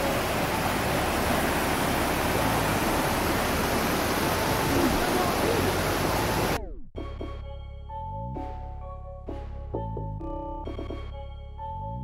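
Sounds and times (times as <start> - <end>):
creek water rushing over rocks: 0.0 - 6.6.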